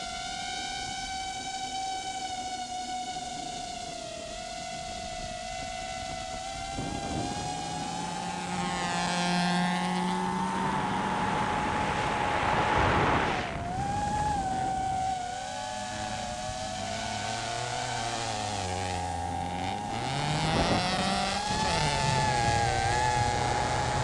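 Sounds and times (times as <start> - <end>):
drone motors whining: 0.0 - 24.0
rally car engine running hard: 4.7 - 24.0
rush of noise: 6.6 - 17.6.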